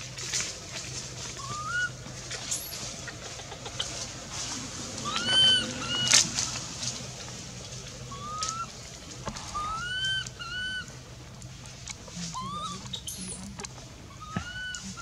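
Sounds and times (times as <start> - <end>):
baby monkey coo calls: 1.3 - 2.0, 5.0 - 6.6, 8.1 - 8.8, 9.4 - 10.9, 12.3 - 15.0.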